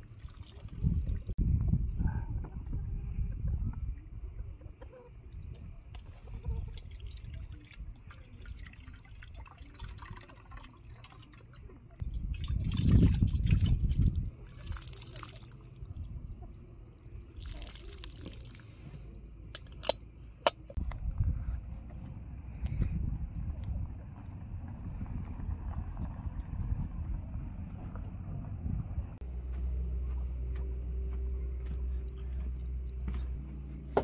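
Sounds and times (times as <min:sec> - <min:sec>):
water pouring into metal bowl: 0:00.0 - 0:01.2, 0:06.6 - 0:16.1, 0:17.2 - 0:18.8.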